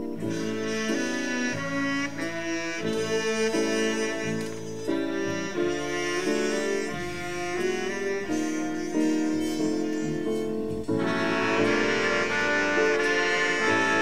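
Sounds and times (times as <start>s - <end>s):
big band playing a jazz ballad: 0.0s - 14.0s.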